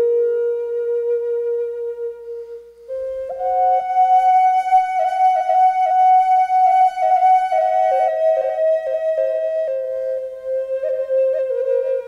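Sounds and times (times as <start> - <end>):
slow melodic music: 2.1 - 12.0.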